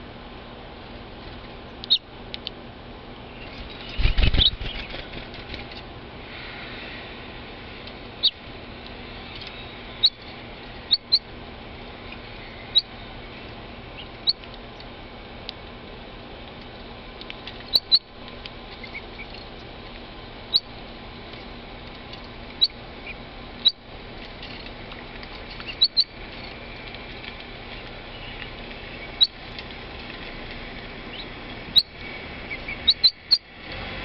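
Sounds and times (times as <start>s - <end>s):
finches chirping: 3.3s - 5.1s, 9.3s - 11.3s, 12.0s - 14.5s, 17.7s - 18.1s, 20.5s - 20.7s, 25.6s - 26.6s, 27.8s - 29.4s, 31.1s - 33.5s.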